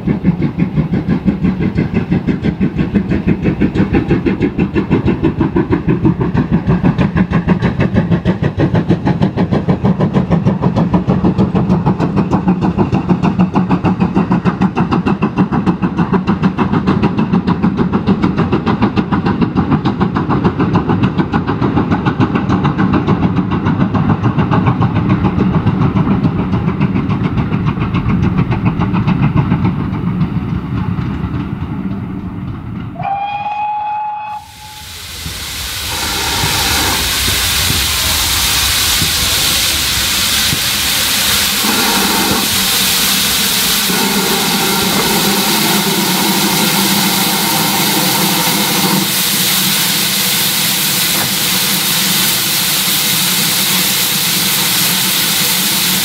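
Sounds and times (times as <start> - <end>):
steam hissing: 0.0 - 19.4, 33.0 - 56.0
steam train rumbling past: 0.0 - 56.0
locomotive whistle: 32.9 - 35.0, 41.0 - 52.0.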